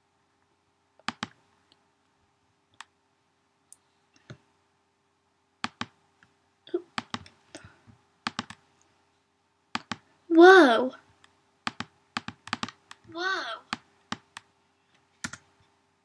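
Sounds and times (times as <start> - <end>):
faint steady hum: 0.0 - 16.0
computer mouse clicks: 1.0 - 1.8, 2.7 - 2.9, 5.6 - 6.0, 8.2 - 8.6, 9.7 - 10.1, 11.2 - 13.1, 15.2 - 15.5.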